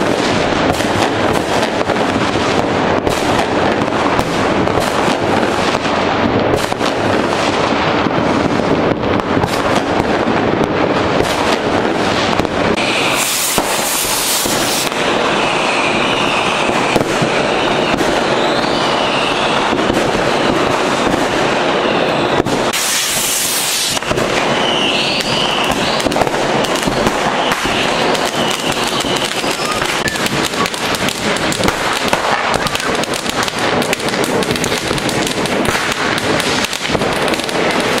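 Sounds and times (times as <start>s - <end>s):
fireworks crackling and banging: 0.0s - 38.0s
fireworks whistling: 0.0s - 38.0s
fireworks hissing: 9.4s - 38.0s.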